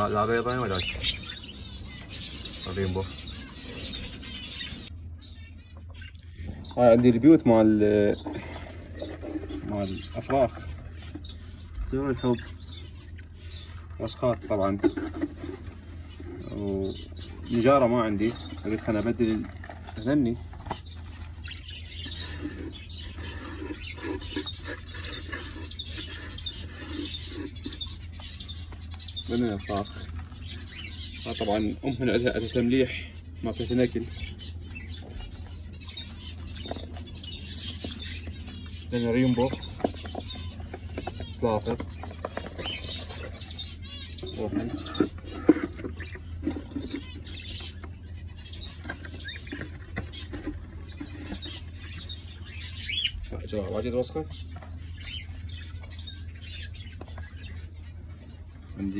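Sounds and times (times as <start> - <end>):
cage birds chirping: 0.0 - 58.9
steady low hum: 0.0 - 58.9
hand scraping dry husks: 13.4 - 31.8.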